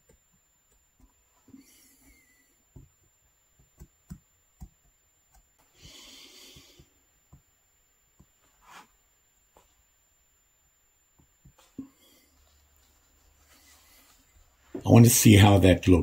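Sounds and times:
person breathing: 0:01.4 - 0:02.7, 0:05.6 - 0:07.0, 0:11.6 - 0:12.7, 0:13.4 - 0:14.6.

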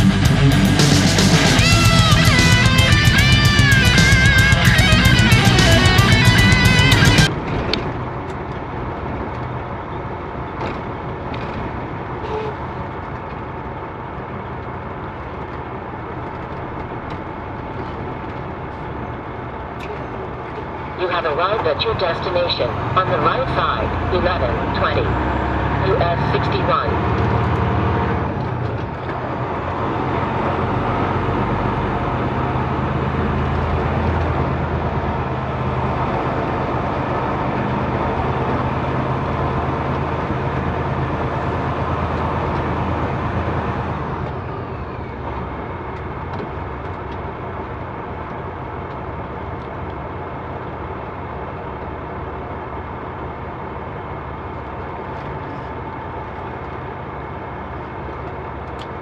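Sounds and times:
truck diesel engine running: 0:00.0 - 0:59.0.

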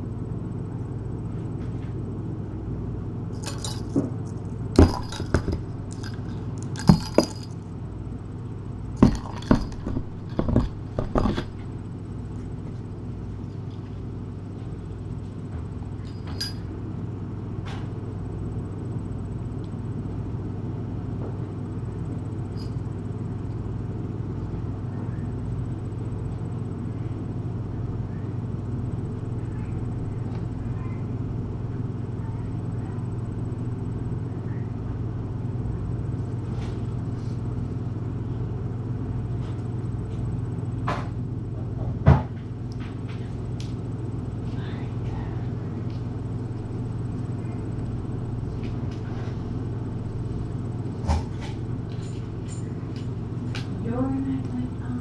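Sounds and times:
steady low hum: 0:00.0 - 0:55.0
kitten clinking food bowl: 0:03.4 - 0:07.6, 0:09.0 - 0:11.5.

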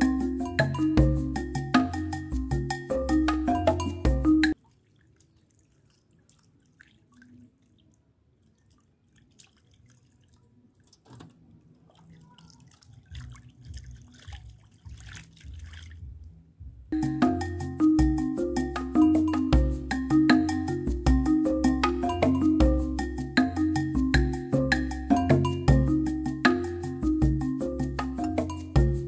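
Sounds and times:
water splashing and dripping: 0:04.5 - 0:16.4.

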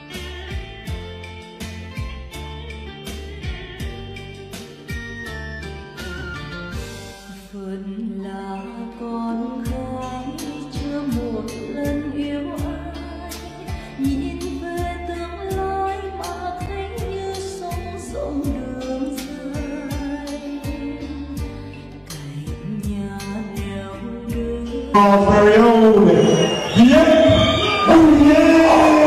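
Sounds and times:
backing track with bass and beat: 0:00.0 - 0:07.4, 0:21.4 - 0:29.0
woman singing into a microphone: 0:07.4 - 0:25.0.

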